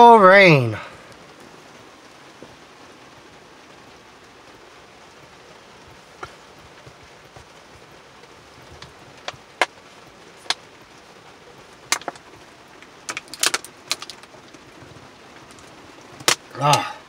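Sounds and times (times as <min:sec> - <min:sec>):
heavy rain on a truck cab: 0:00.0 - 0:17.0
plastic water bottle crackling: 0:06.2 - 0:11.0, 0:11.7 - 0:16.9.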